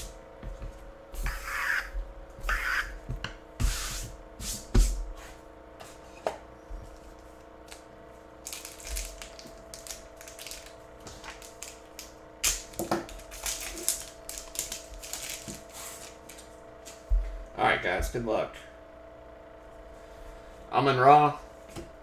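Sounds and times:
faint steady hum: 0.0 - 22.0
foil wrappers crinkling: 8.4 - 17.0.

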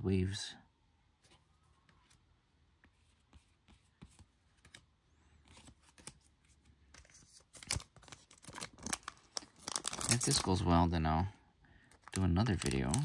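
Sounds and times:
cards and plastic wrapper rustling: 4.1 - 10.7, 11.8 - 13.0.

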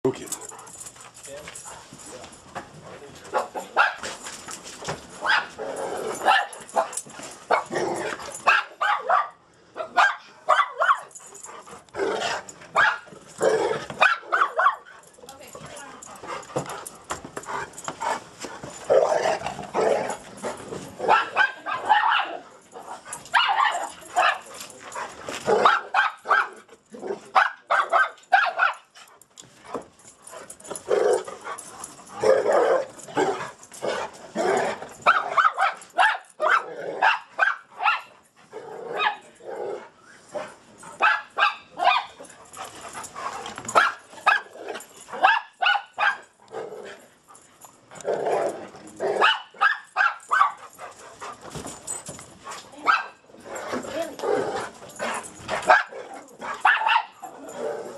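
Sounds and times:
dogs barking: 3.3 - 4.1, 5.2 - 5.6, 6.2 - 7.8, 8.4 - 11.2, 12.1 - 14.9, 21.0 - 24.5, 25.5 - 26.7, 27.3 - 28.9, 34.5 - 38.1, 41.0 - 42.3, 43.7 - 46.3, 49.0 - 50.8, 52.8 - 53.2, 55.0 - 57.5.

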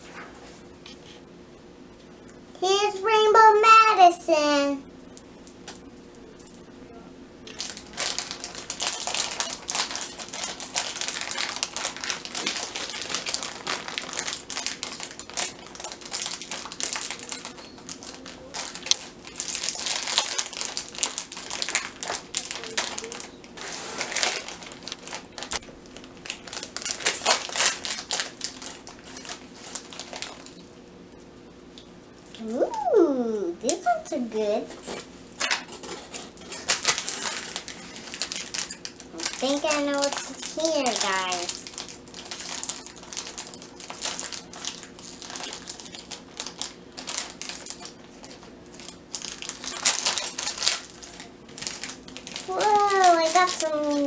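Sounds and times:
foil packaging crinkling: 7.4 - 30.7, 34.7 - 54.0.

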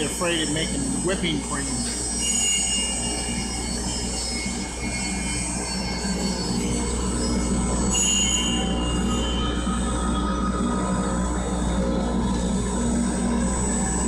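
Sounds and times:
mixer motor hum with whine: 0.0 - 14.0.

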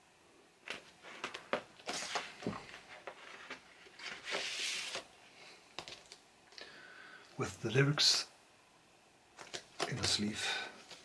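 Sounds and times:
papery rustle: 1.0 - 5.1.

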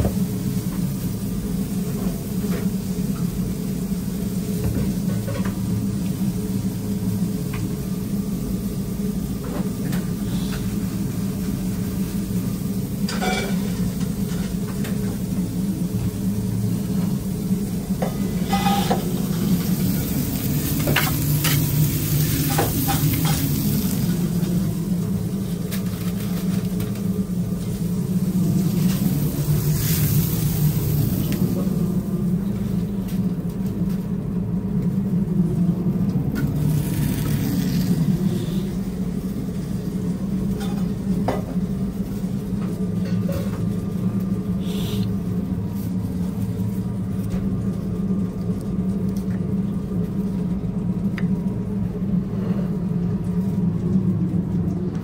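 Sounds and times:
low kitchen hum: 0.0 - 55.0
food sizzling on a griddle: 0.1 - 32.1, 36.4 - 39.2, 44.6 - 45.1
plates and utensils clinking: 13.1 - 13.8, 18.4 - 19.3.

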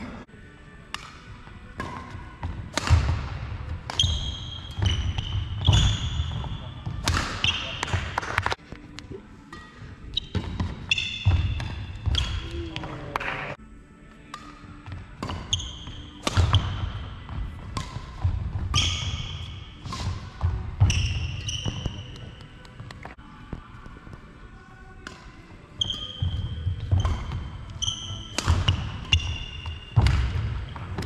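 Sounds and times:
racket striking shuttlecock: 0.9 - 8.1, 14.3 - 17.1, 17.7 - 21.8, 26.8 - 27.6, 28.2 - 31.0
shoes squealing on wooden floor: 4.0 - 7.8, 25.8 - 29.9.

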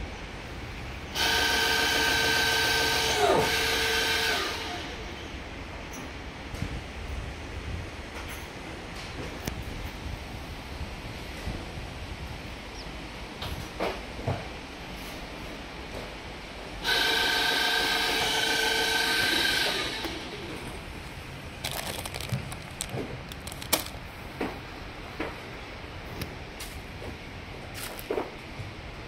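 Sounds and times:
horn of held tones: 1.2 - 5.2, 16.8 - 20.1
handling clicks and rustles: 20.6 - 24.6.

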